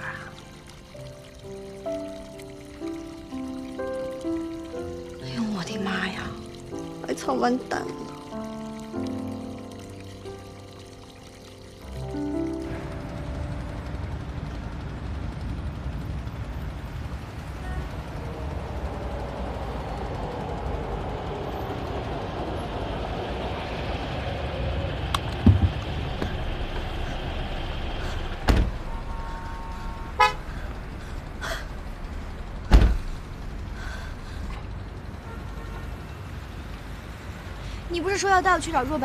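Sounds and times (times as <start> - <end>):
car engine and road rumble: 12.0 - 39.0
car horn toot: 28.9 - 30.6.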